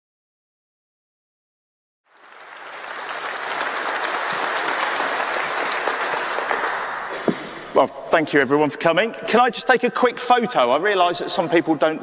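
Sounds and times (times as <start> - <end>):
audience applauding: 2.1 - 7.4.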